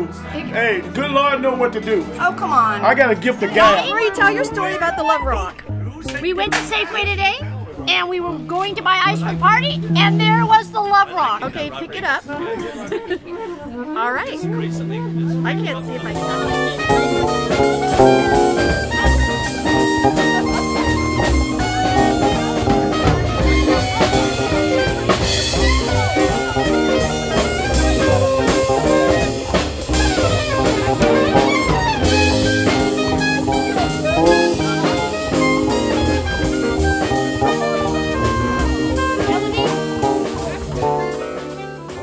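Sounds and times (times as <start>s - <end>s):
keyboard: 0.0s - 42.0s
saxophone lead: 2.1s - 11.4s, 13.2s - 42.0s
drum kit beat: 6.1s - 11.2s, 14.4s - 42.0s.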